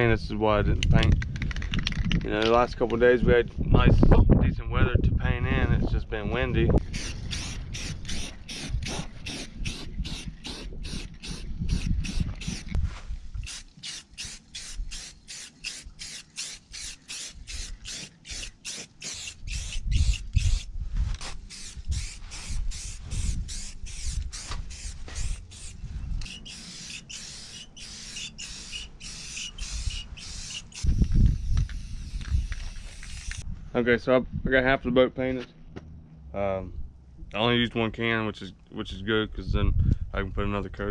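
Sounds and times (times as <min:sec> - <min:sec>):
wind rumbling on microphone: 0:00.0 - 0:13.6, 0:19.2 - 0:26.6, 0:29.6 - 0:34.9, 0:38.8 - 0:40.9
spray paint can hissing: 0:06.8 - 0:12.8, 0:13.4 - 0:33.4.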